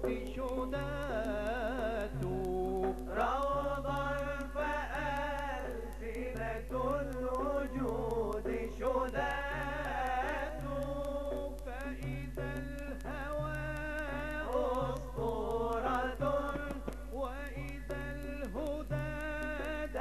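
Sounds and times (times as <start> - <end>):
lead male voice singing: 0.0 - 20.0.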